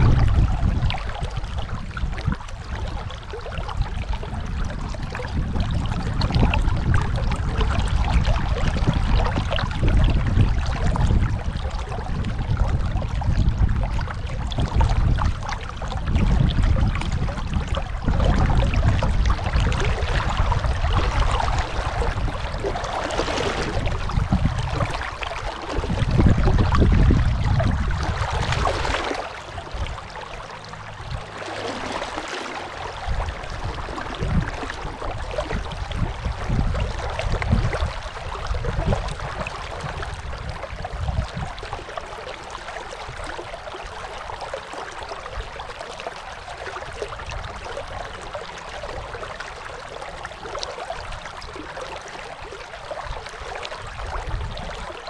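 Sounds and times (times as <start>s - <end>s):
low rumbles: 23.6s - 37.9s
river water rushing: 28.0s - 35.4s.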